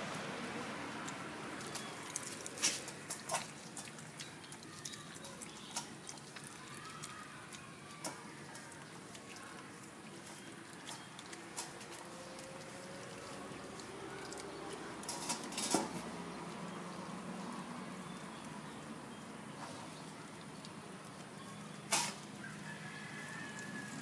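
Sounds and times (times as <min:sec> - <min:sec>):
dog chewing crunches: 0:01.0 - 0:15.6.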